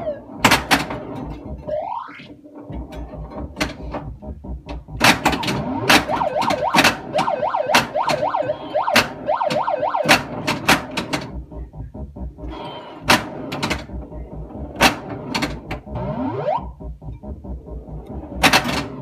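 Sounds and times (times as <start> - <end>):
siren-like electronic warble: 0.0 - 0.3, 1.6 - 2.3, 5.4 - 10.4, 15.9 - 18.4
pinball mechanical clacks: 0.0 - 1.7, 2.5 - 11.6, 12.5 - 16.2, 17.1 - 19.0
electronic rising sweep: 1.4 - 2.3, 4.1 - 10.2, 11.3 - 19.0.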